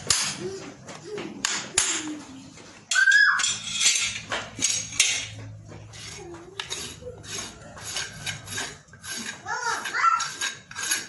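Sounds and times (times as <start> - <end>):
metal tools scraping hoof: 2.9 - 11.0.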